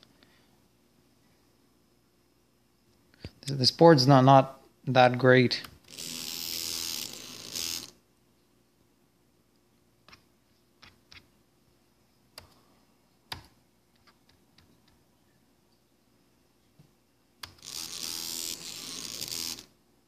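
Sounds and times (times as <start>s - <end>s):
stepper motor running: 5.9s - 7.9s, 17.6s - 19.7s.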